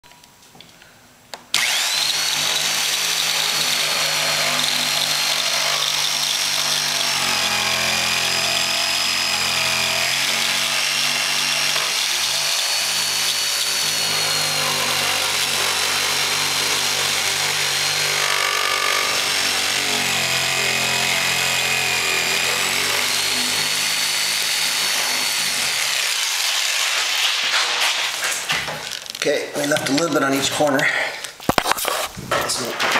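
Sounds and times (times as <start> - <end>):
jigsaw cutting with motor whine: 1.5 - 27.8.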